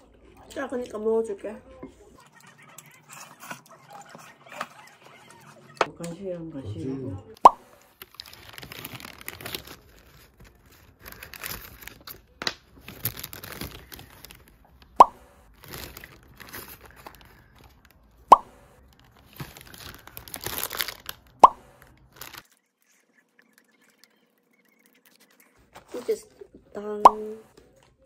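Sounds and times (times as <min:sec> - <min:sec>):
paper wrapper crinkling: 0:07.7 - 0:26.5.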